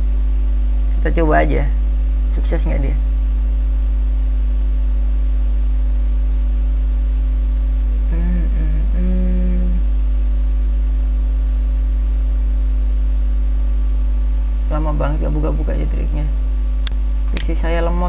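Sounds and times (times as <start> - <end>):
electrical mains hum: 0.0 - 18.0
person humming: 8.1 - 9.9.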